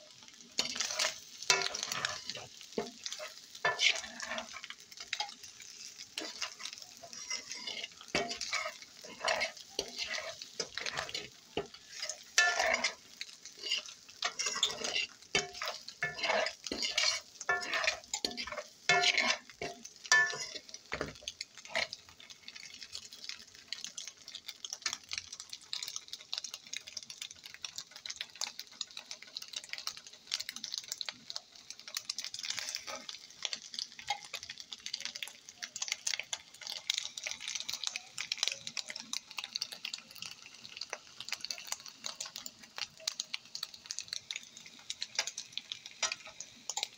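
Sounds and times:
eggs sizzling: 0.0 - 46.9
fork scraping frying pan: 0.6 - 22.0, 46.0 - 46.9.

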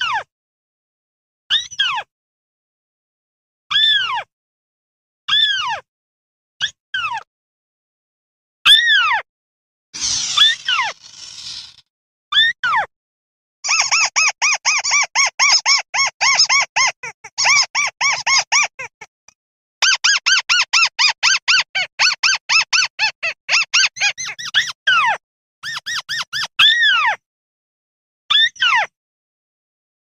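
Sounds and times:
falling squeals: 10.0 - 11.8
rail bird squeaky calls: 13.7 - 19.0, 19.8 - 27.2.

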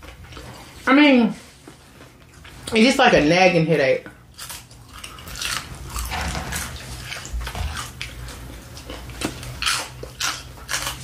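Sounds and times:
crunchy chewing and biting: 4.2 - 11.0.

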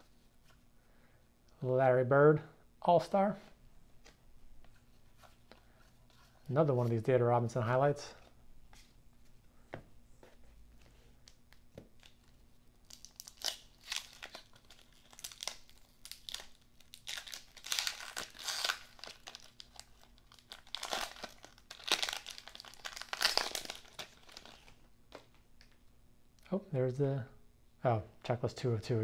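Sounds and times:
wrapper tearing and crinkling: 12.0 - 24.8.

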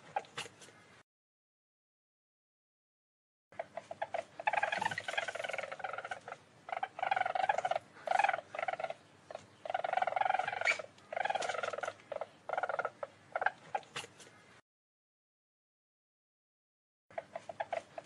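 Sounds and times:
animal chattering trills: 3.6 - 14.3, 17.1 - 18.0.

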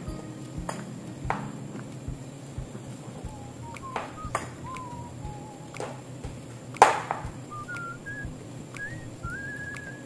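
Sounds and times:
person whistling a slow tune: 3.2 - 6.4, 7.2 - 10.0.

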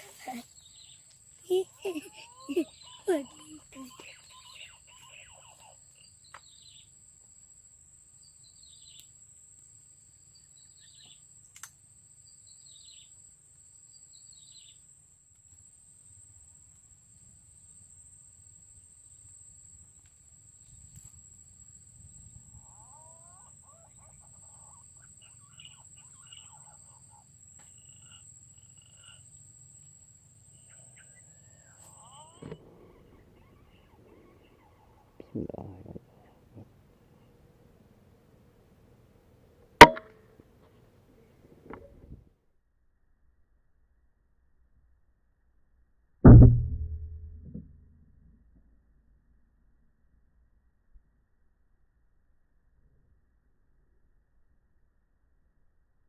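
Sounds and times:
faint whistled calls: 0.0 - 6.9, 30.5 - 37.4
low rumble: 46.3 - 47.9.

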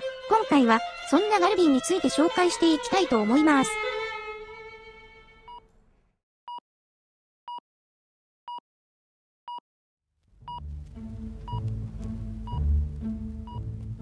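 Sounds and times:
background music with bass: 10.4 - 14.0.

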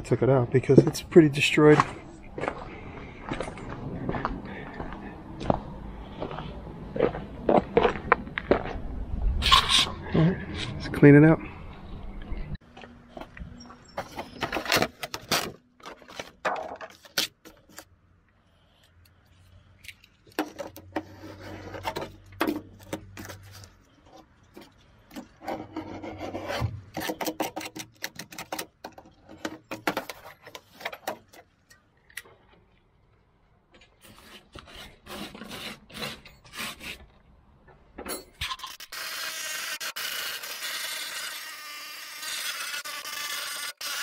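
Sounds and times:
rubber scraping and rubbing: 20.3 - 31.3.

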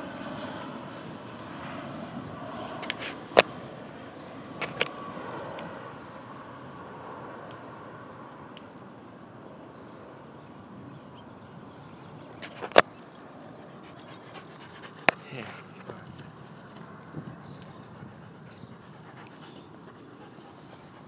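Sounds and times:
outdoor background noise: 0.0 - 21.0
dog panting: 13.5 - 16.8, 17.5 - 21.0.

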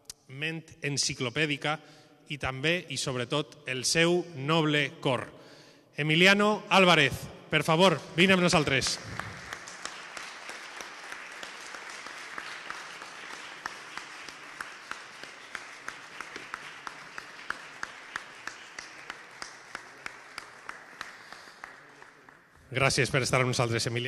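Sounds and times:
audience applauding: 8.8 - 22.6
individual claps close by: 8.8 - 22.6.

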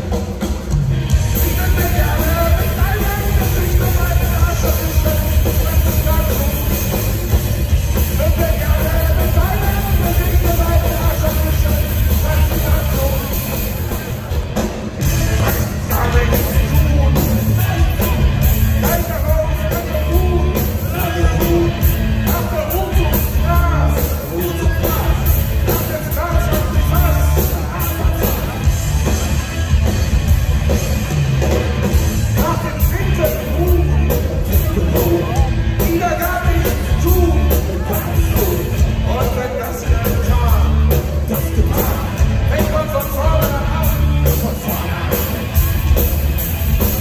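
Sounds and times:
live punk rock band: 0.0 - 47.0
lead vocal: 1.4 - 7.0, 15.0 - 28.8, 32.4 - 45.6.

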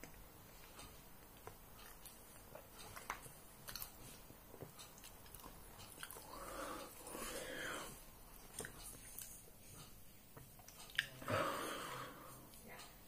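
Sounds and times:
faint chewing: 0.0 - 13.0
mouth clicks and smacks: 8.3 - 11.3.

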